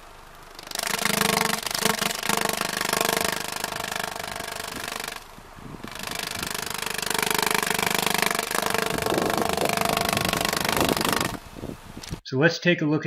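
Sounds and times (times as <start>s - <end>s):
paper flapping at exhaust pipe: 5.8s - 11.4s.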